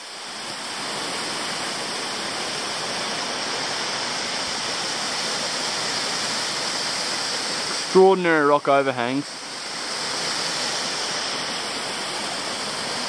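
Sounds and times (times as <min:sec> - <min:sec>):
waterfall splashing onto rocks: 0:00.0 - 0:13.0.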